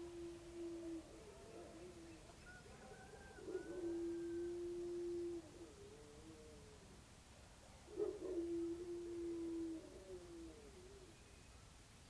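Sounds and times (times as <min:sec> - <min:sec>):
distant rooster crowing: 0:02.4 - 0:05.2.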